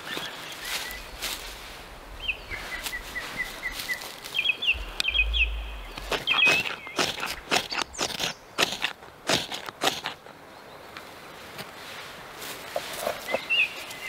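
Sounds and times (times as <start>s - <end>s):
small birds singing: 0.0s - 8.9s, 13.0s - 14.0s
knife scraping dry tinder: 6.0s - 10.2s.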